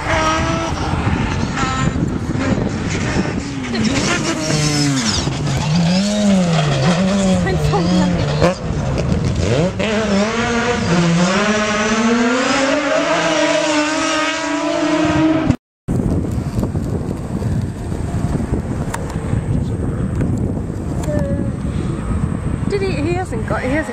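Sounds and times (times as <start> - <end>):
rally car engine revving: 0.0 - 15.6.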